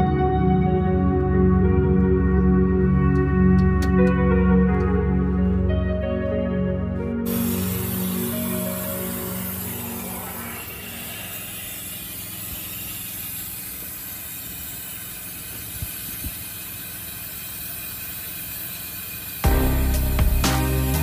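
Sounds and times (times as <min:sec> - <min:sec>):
music: 0:00.0 - 0:10.7, 0:19.4 - 0:21.0.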